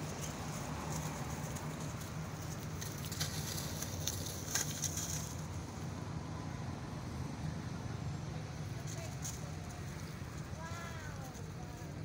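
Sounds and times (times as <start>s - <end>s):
dry leaves crackling and rustling: 0.0s - 5.9s, 8.8s - 12.0s.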